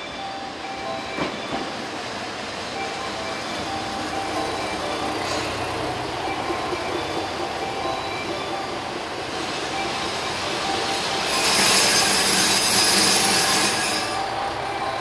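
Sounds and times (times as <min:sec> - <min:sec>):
diesel train engines running: 0:00.0 - 0:15.0
train brakes hissing and squealing: 0:04.4 - 0:15.0.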